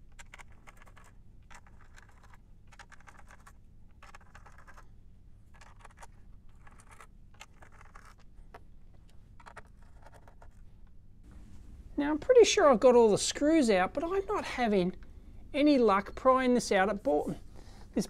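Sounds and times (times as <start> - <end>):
fingers scratching and clicking screws: 0.0 - 4.9, 5.5 - 10.6.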